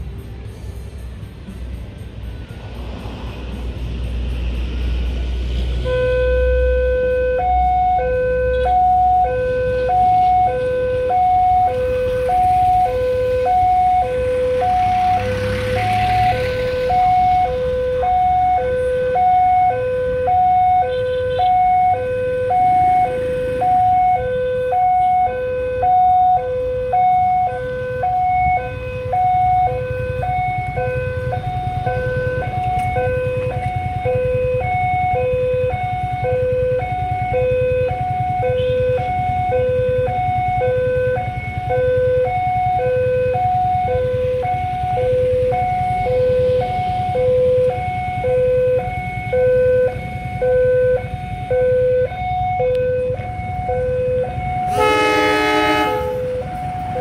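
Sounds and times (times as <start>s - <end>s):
two-tone level crossing alarm: 5.8s - 57.0s.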